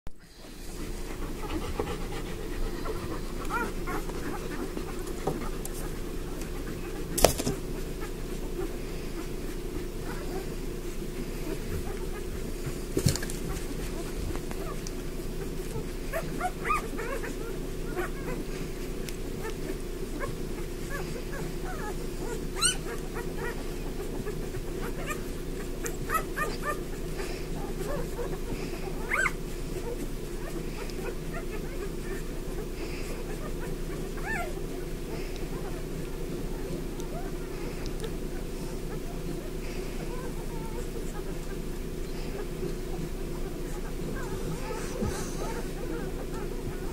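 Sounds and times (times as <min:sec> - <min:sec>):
steady low hum: 0:00.2 - 0:46.9
puppies squeaking and whimpering: 0:00.4 - 0:46.9.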